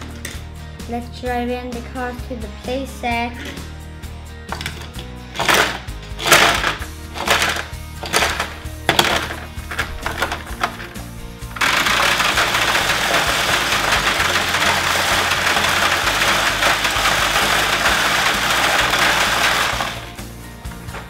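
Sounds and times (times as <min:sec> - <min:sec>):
soft background music: 0:00.0 - 0:21.0
toy cars clicking on plastic: 0:04.5 - 0:11.0, 0:11.6 - 0:20.2.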